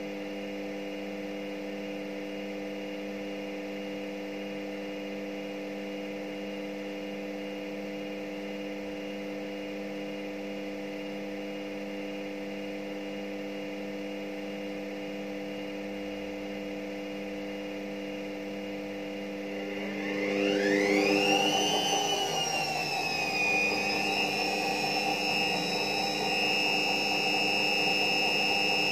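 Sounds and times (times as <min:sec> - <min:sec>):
washing machine motor whine: 0:17.6 - 0:28.9
washing machine motor hum: 0:18.5 - 0:28.9.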